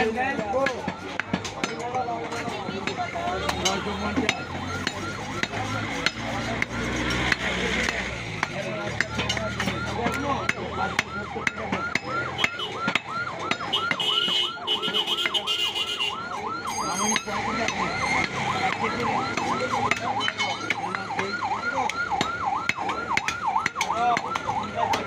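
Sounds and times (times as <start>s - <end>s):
fast yelping siren: 0.0s - 25.0s.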